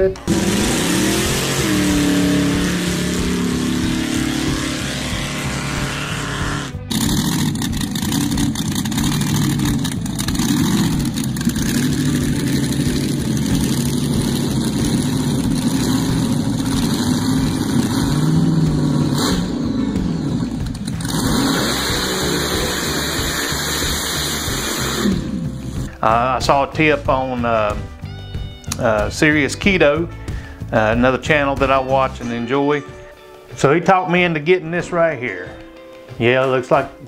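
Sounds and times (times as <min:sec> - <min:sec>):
immersion blender running: 0:00.0 - 0:19.5, 0:20.8 - 0:25.9.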